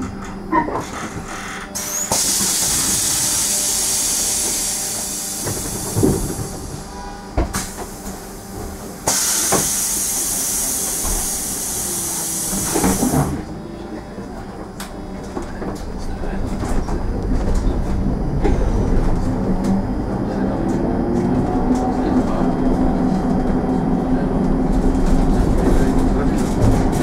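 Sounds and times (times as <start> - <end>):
bus running hum: 0.0 - 27.0
compressed air hissing: 9.0 - 13.4.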